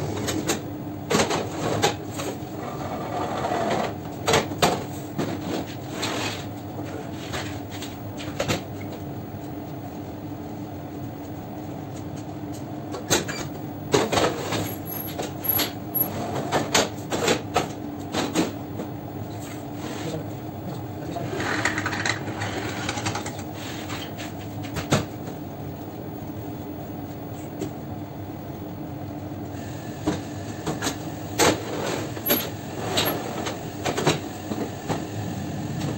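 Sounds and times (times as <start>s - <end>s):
machine hum: 34.3s - 35.9s.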